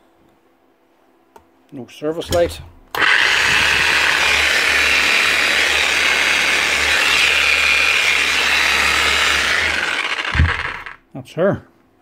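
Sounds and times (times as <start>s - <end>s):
demolition hammer running: 3.0s - 11.0s.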